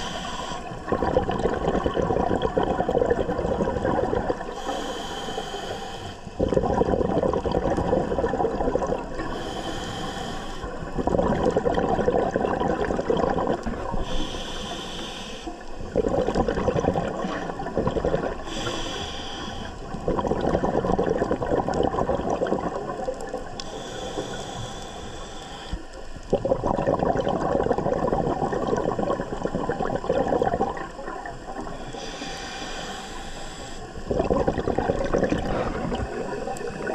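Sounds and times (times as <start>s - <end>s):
regulator inhale hiss: 0.0s - 0.9s, 4.4s - 6.4s, 9.2s - 11.0s, 13.8s - 15.9s, 18.3s - 20.0s, 23.5s - 26.3s, 31.5s - 34.1s, 35.3s - 36.9s
exhaled bubbles rushing: 0.0s - 4.5s, 6.4s - 9.3s, 10.8s - 14.1s, 15.8s - 18.7s, 19.7s - 23.6s, 26.2s - 31.8s, 34.0s - 36.9s.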